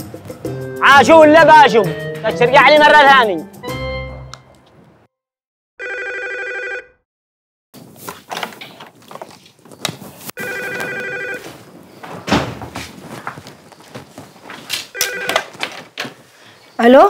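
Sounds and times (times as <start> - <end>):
electronic telephone ring: 5.8 - 7.0, 10.4 - 11.4, 14.9 - 15.5
thud: 12.0 - 12.9.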